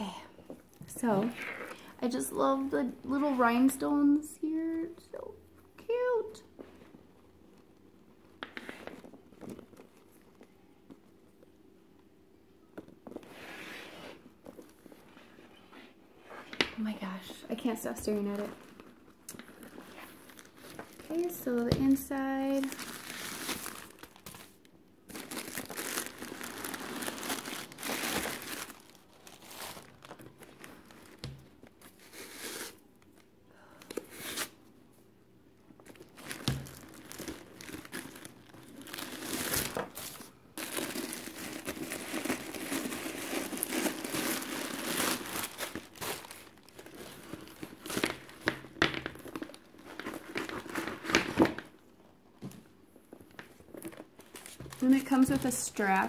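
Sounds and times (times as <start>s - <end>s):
tissue paper rustling: 22.1s - 32.8s, 35.9s - 48.2s.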